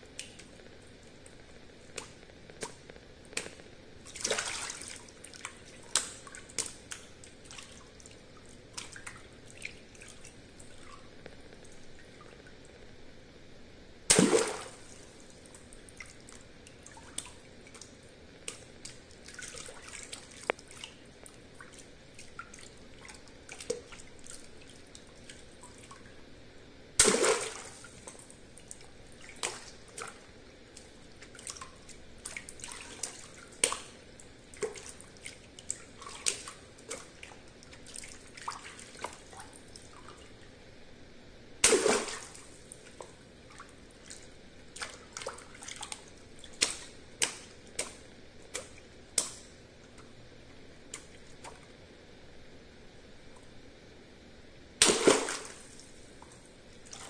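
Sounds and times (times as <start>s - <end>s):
water splashing and sloshing: 0.0s - 12.9s, 14.1s - 26.3s, 26.9s - 40.5s, 41.6s - 50.1s, 54.8s - 57.0s
water balloons popping: 54.8s - 55.6s.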